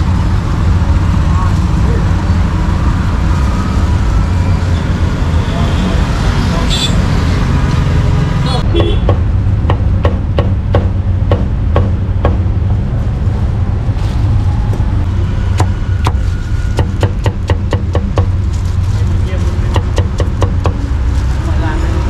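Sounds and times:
cleaver chopping on wooden block: 0:08.8 - 0:12.4.

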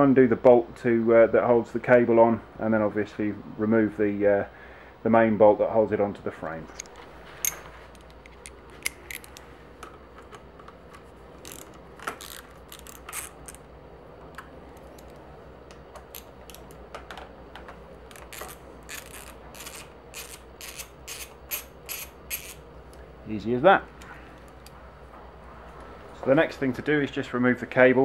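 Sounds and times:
hex tools clicking on bolts: 0:07.4 - 0:09.4, 0:11.4 - 0:13.6, 0:18.1 - 0:22.6.

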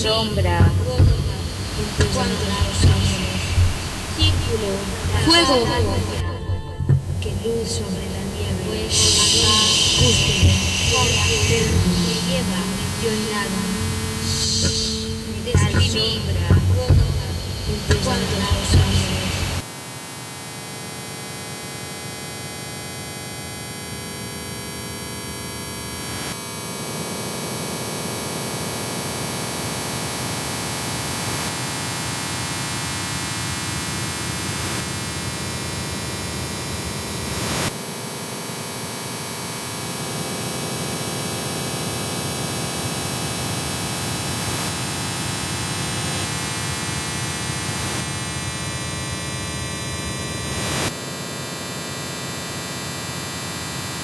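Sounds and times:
electronic noise music: 0:00.0 - 0:19.6
steady humming tones: 0:00.0 - 0:19.6.

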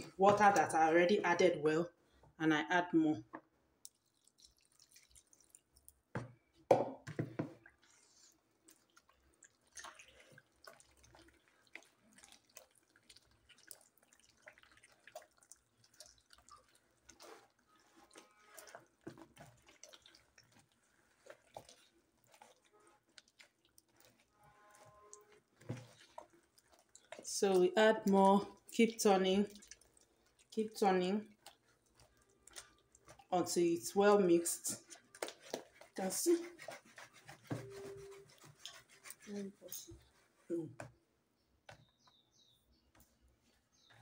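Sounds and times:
wet batter squelching: 0:00.0 - 0:02.4, 0:03.6 - 0:44.0
water splashing into bowl: 0:03.8 - 0:06.0, 0:08.7 - 0:36.0.

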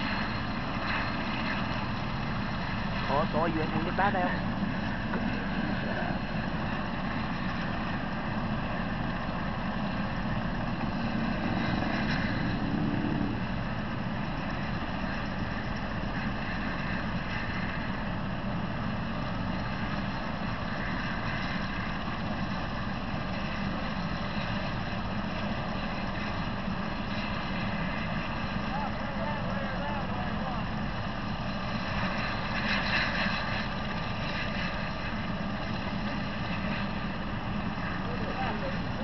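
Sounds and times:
vehicle engines idling: 0:28.5 - 0:31.7.

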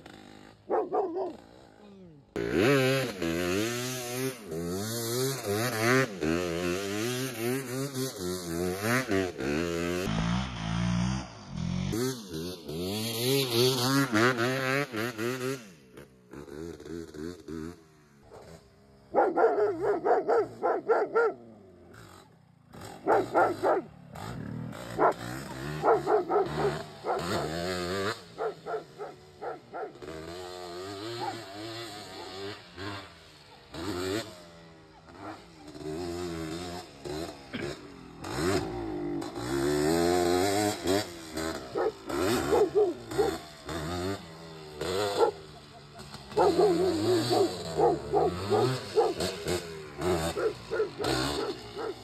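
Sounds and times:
two-stroke engine revving: 0:00.0 - 0:52.0
dog barking: 0:00.7 - 0:01.4, 0:19.1 - 0:21.4, 0:23.0 - 0:23.9, 0:25.0 - 0:27.6, 0:28.4 - 0:30.0, 0:31.1 - 0:31.4, 0:41.7 - 0:43.4, 0:45.2 - 0:49.3, 0:50.3 - 0:52.0.

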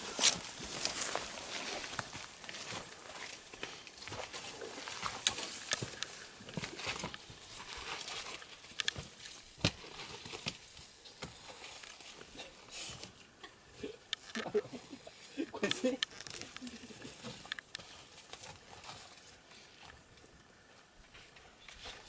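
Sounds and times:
footsteps on muddy trail: 0:00.0 - 0:13.2
leaves and branches brushing: 0:00.0 - 0:13.2.

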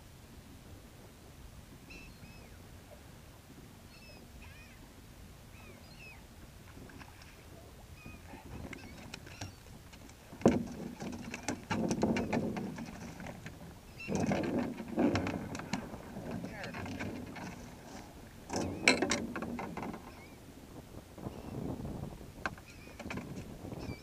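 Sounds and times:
gulls calling: 0:08.0 - 0:09.8, 0:13.9 - 0:19.1
thumping and rattling: 0:10.3 - 0:20.0.

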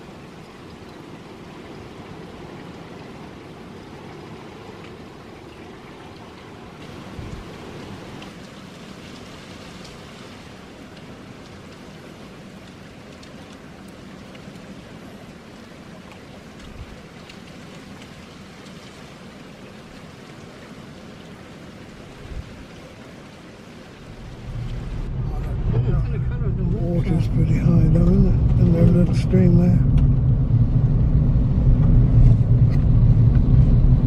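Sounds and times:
rain on a road: 0:00.0 - 0:34.0
low thumps: 0:24.1 - 0:34.0.

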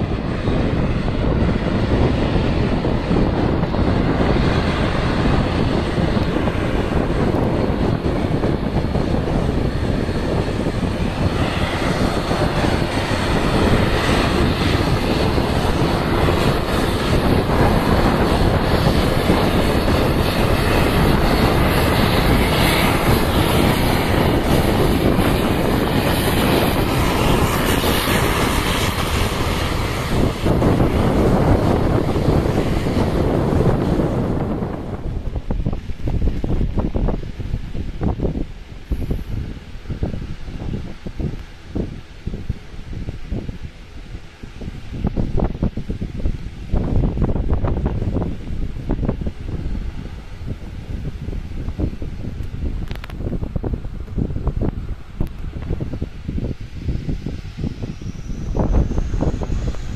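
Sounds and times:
turboprop engines and propellers: 0:00.0 - 0:59.9
wind buffeting microphone: 0:00.0 - 0:59.9.

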